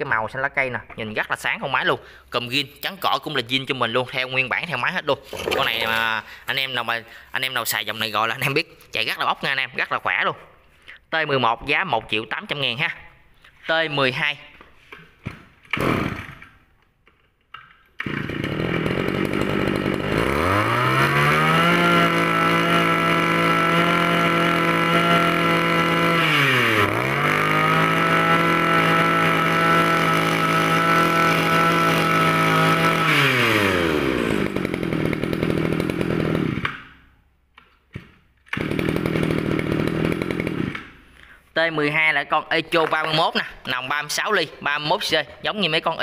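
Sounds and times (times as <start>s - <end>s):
brush cutter engine revving: 5.2s - 6.5s, 15.7s - 16.5s, 18.0s - 36.9s, 38.5s - 41.0s.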